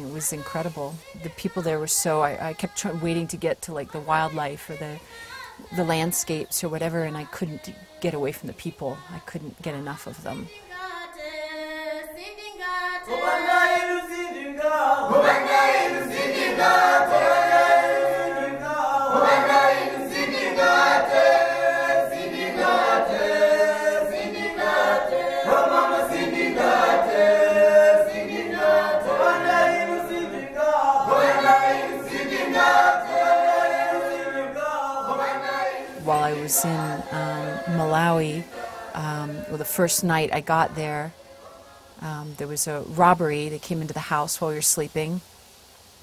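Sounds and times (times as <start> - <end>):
choir singing: 0.0 - 42.1.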